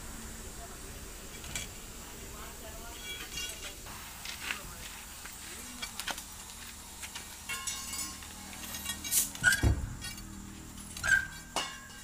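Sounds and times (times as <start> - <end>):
metal clinking at wheel hub: 2.9 - 3.9, 5.4 - 12.0.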